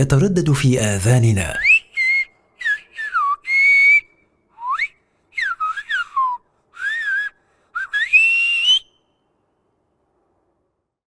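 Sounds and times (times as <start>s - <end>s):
man whistling: 1.6s - 9.2s.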